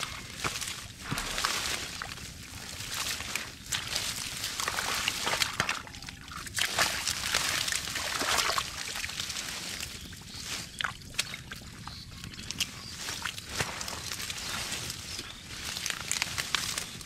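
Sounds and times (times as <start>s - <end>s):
muddy water sloshing and splashing: 0.0s - 17.0s.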